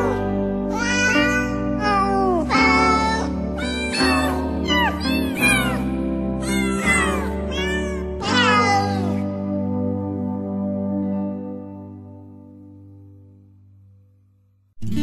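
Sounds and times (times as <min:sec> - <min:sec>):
cat meows set to a tune: 0:00.0 - 0:09.3.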